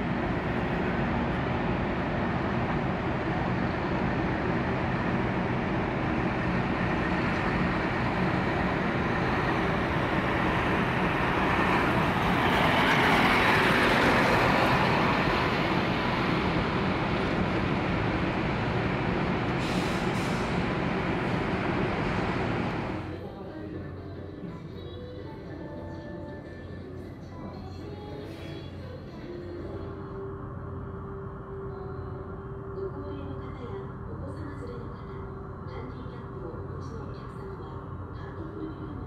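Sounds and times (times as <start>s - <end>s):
engines humming: 0.0s - 25.1s.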